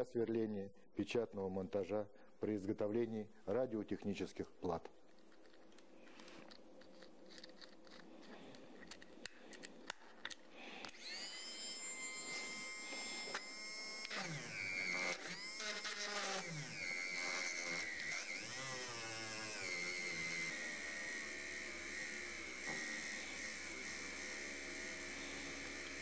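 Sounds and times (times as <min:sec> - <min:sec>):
small clicks of drill bit fitting: 0:05.2 - 0:20.6, 0:25.2 - 0:26.0
mini drill motor whining: 0:10.7 - 0:26.0.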